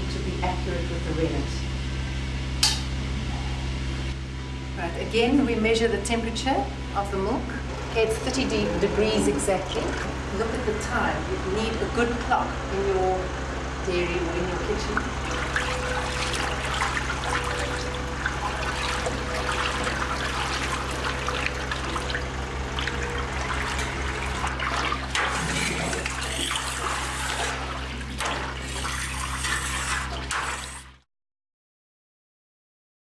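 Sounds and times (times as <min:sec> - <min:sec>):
steady low hum: 0:00.0 - 0:31.0
milk sloshing and trickling: 0:15.0 - 0:31.0.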